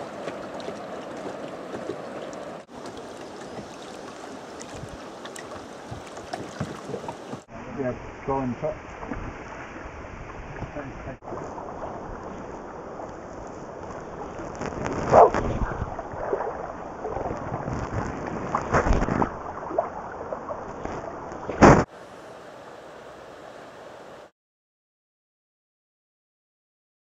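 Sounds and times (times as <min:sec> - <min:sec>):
river water rushing: 0:00.0 - 0:07.5, 0:19.4 - 0:24.3
wind on microphone: 0:04.6 - 0:05.1, 0:09.0 - 0:19.8.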